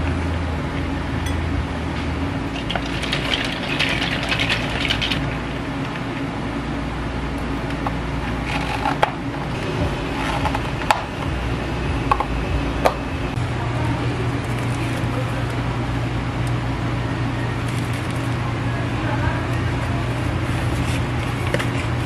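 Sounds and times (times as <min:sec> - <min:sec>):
low machine hum: 0:00.0 - 0:22.0.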